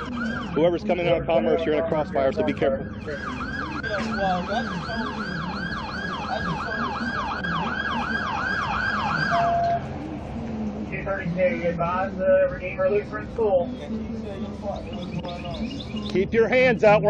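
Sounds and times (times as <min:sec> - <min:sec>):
police siren yelp: 0:00.0 - 0:09.9.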